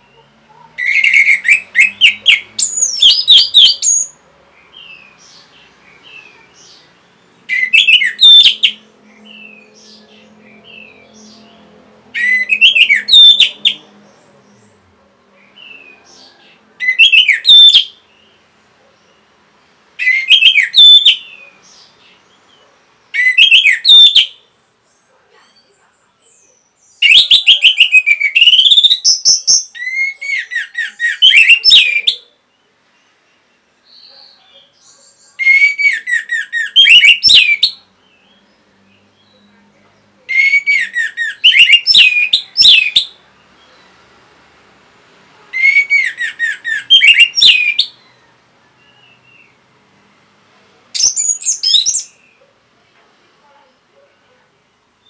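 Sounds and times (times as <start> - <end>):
thrush singing whistled notes: 0.8 - 4.2, 7.5 - 11.4, 12.2 - 13.9, 16.8 - 18.0, 20.0 - 21.5, 23.2 - 24.4, 27.0 - 32.2, 35.3 - 38.3, 40.3 - 43.8, 45.6 - 49.6, 51.0 - 52.3.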